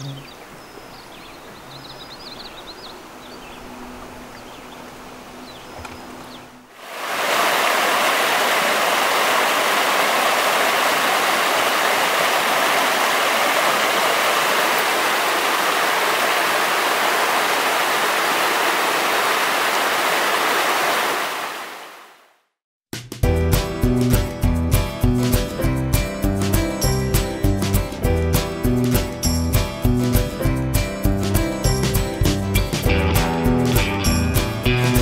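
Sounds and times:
fast-flowing water rushing: 6.7s - 22.2s.

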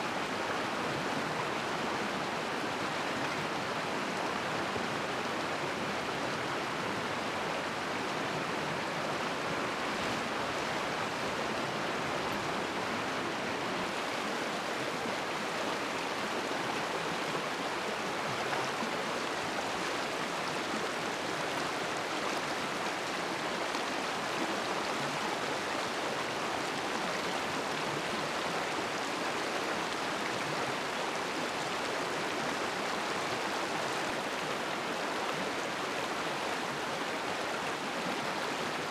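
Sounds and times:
stream flowing: 0.0s - 38.9s.

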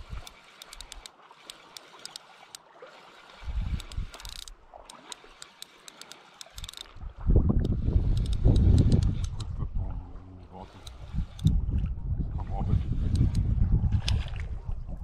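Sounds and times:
water trickling and lapping: 0.0s - 15.0s
sharp ticks: 0.2s - 2.6s, 3.7s - 6.9s, 7.6s - 9.5s, 13.0s - 13.4s.

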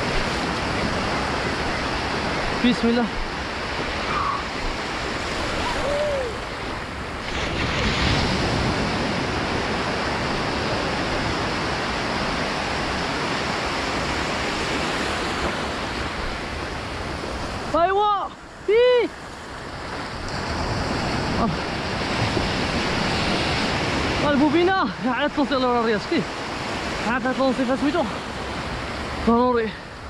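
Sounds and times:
wind on microphone: 0.0s - 17.7s, 19.6s - 24.3s
ocean surf on beach: 0.0s - 30.0s.

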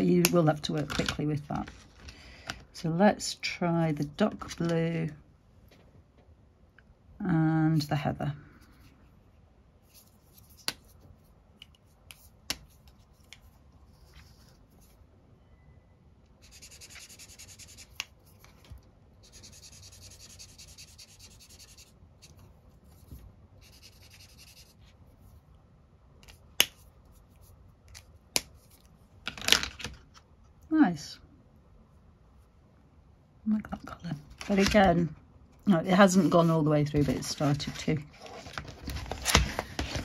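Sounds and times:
marker scribbling on paper: 16.4s - 18.0s, 19.2s - 21.9s, 23.6s - 24.8s.

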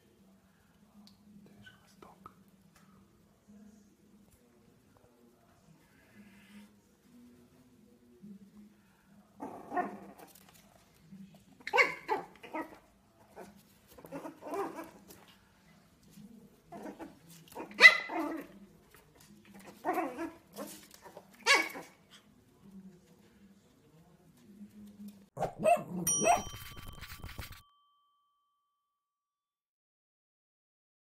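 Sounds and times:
puppy yapping: 11.7s - 12.8s, 16.8s - 18.5s, 19.8s - 21.9s, 25.4s - 26.6s.

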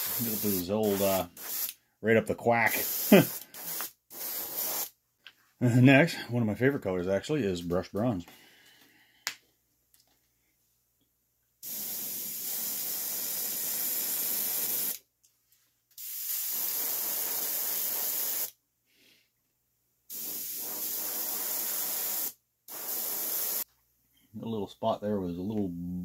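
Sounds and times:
airbrush spraying hiss: 0.0s - 1.8s, 2.6s - 4.9s, 11.6s - 15.0s, 16.0s - 18.5s, 20.1s - 23.7s.

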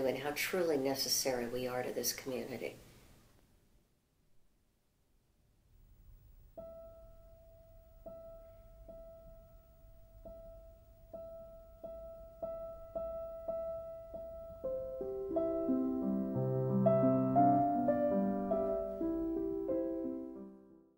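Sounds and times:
piano music: 6.5s - 20.9s.

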